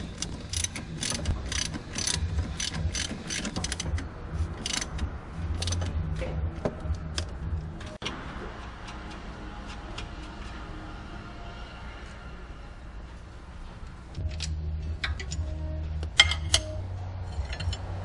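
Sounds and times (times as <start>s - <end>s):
ratchet wrench clicking: 0.0s - 4.0s, 4.6s - 5.0s, 5.6s - 5.9s.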